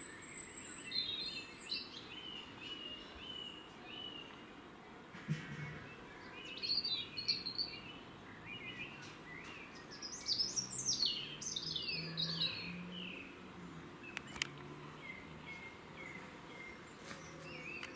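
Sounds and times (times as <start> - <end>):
birds chirping and whistling: 0.0 - 4.4, 5.6 - 13.4, 14.0 - 17.9.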